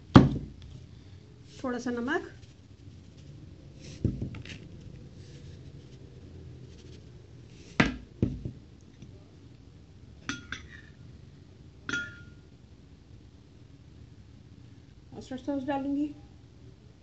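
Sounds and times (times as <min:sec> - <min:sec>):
kitchenware clinking on counter: 0:10.3 - 0:10.9, 0:11.9 - 0:12.4.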